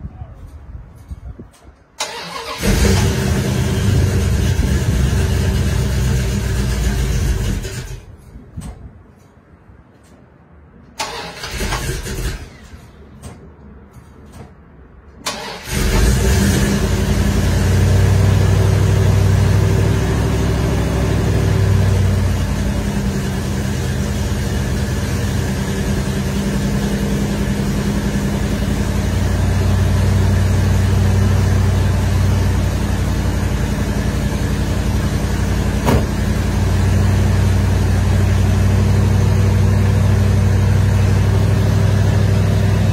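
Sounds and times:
engine running steadily: 0:00.0 - 0:10.2, 0:11.0 - 0:42.9
engine cranking: 0:02.0 - 0:04.1, 0:11.0 - 0:12.9, 0:15.2 - 0:16.7.

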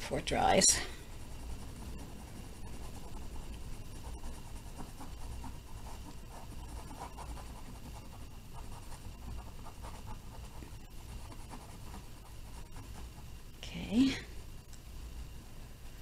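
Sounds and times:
low steady hum: 0:00.0 - 0:16.0
cotton swab scratching canvas: 0:01.0 - 0:13.4.

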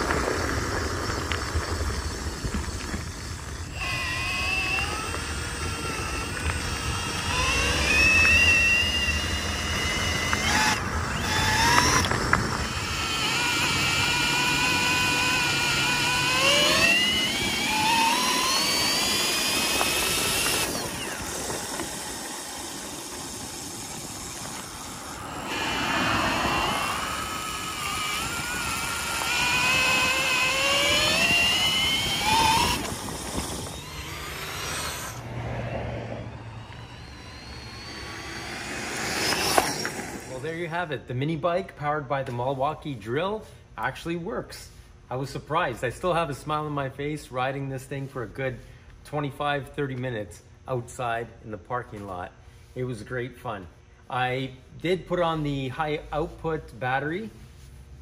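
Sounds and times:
drill motor whine: 0:00.0 - 0:40.5
wind noise: 0:00.0 - 0:40.5
tyre noise: 0:00.0 - 0:40.7.

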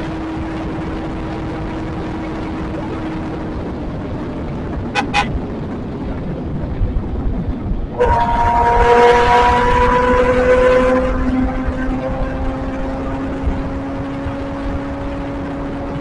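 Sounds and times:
motorcycle engine cruising: 0:00.0 - 0:16.0
steady whine: 0:00.0 - 0:16.0
wind rush: 0:00.0 - 0:16.0
horn toots: 0:04.9 - 0:05.4, 0:08.0 - 0:12.3.

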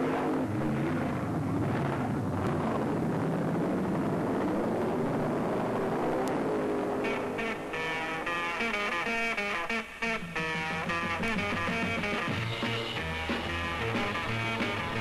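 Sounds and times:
drag racing engine roaring: 0:00.0 - 0:08.6
guitar music: 0:07.1 - 0:15.0.

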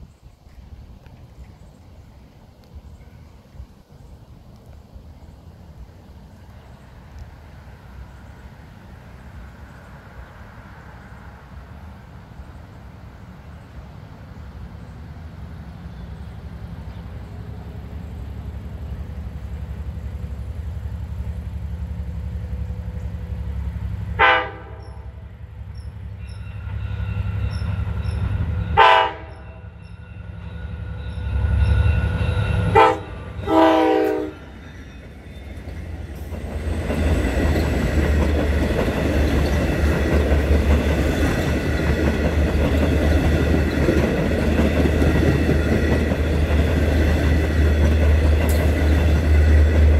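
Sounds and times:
diesel train engine rumble: 0:00.0 - 0:49.9
train wheels and cars passing: 0:00.0 - 0:49.9
train horn: 0:24.2 - 0:25.3, 0:28.7 - 0:34.6.

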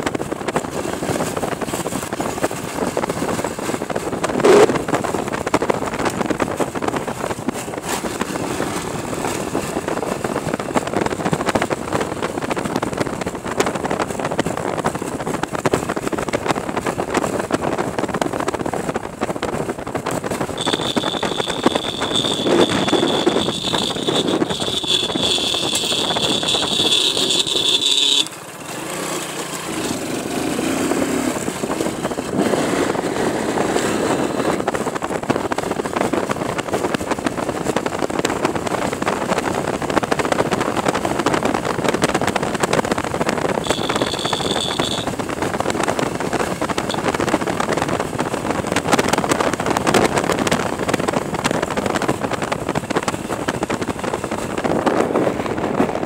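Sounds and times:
wind on microphone: 0:00.0 - 0:28.2, 0:29.7 - 0:56.0
motorcycle engine: 0:00.0 - 0:56.0
high steady tone: 0:20.6 - 0:28.3, 0:43.6 - 0:45.1.

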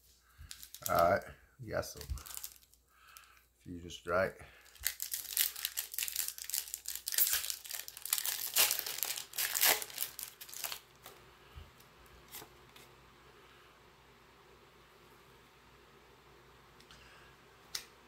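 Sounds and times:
foil wrapper crinkling and tearing: 0:00.4 - 0:01.2, 0:02.0 - 0:03.4, 0:04.6 - 0:11.2.

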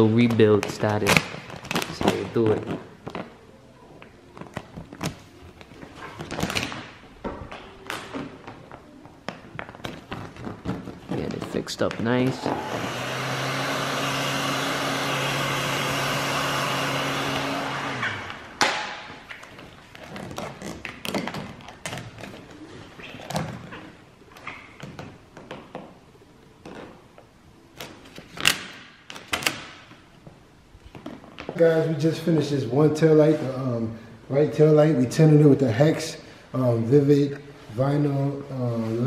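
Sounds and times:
heat gun blowing hiss: 0:12.4 - 0:18.4.

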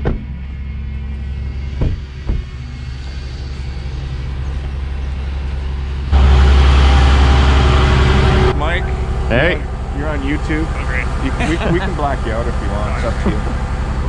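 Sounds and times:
dull knocks: 0:00.0 - 0:00.4, 0:01.8 - 0:02.6
diesel truck engine idling: 0:04.2 - 0:14.0.

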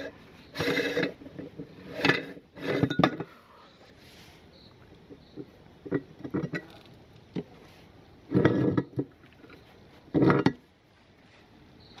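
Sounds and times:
scraping rubs in metal barrel: 0:00.0 - 0:04.5.

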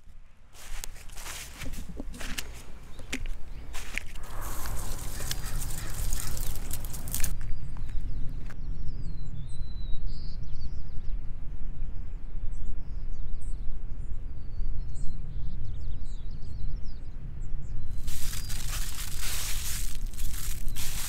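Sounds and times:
dry leaves crunching underfoot: 0:00.0 - 0:07.5, 0:18.0 - 0:21.0
small birds chirping: 0:00.6 - 0:08.6, 0:17.8 - 0:21.0.

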